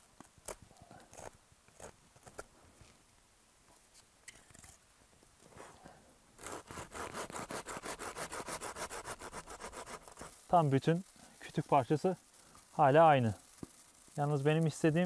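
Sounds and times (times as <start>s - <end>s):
hand saw cutting wood: 6.4s - 11.0s.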